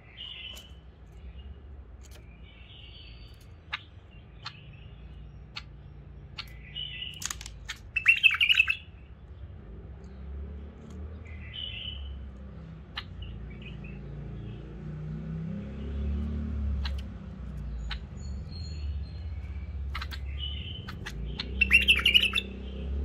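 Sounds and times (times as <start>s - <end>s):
bird chirping: 0.0s - 23.0s
sharp clicks in cage: 0.4s - 1.3s, 1.9s - 2.4s, 5.4s - 8.7s, 16.7s - 18.2s, 19.8s - 22.4s.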